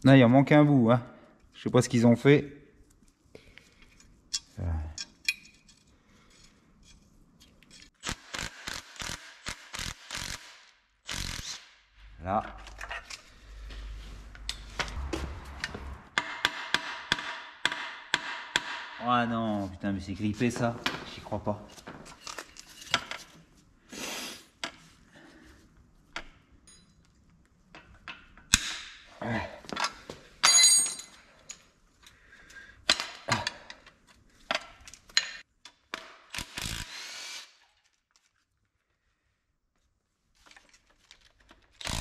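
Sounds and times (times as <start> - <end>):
cordless ratchet bursts: 36.4 - 37.4, 41.8 - 42.0.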